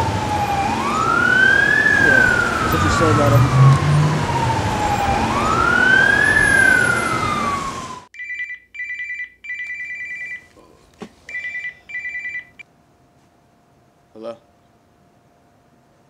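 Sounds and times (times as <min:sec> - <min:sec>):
emergency siren wailing: 0:00.0 - 0:08.1
traffic noise: 0:00.0 - 0:08.1.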